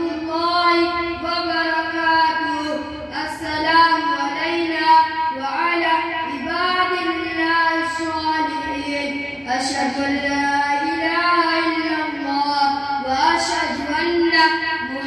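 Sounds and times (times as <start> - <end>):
child singing a religious recitation: 0.0 - 15.0.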